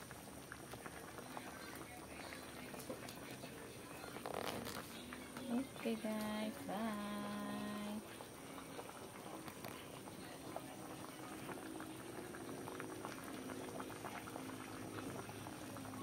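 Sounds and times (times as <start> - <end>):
curry bubbling in a pot: 0.0 - 16.0.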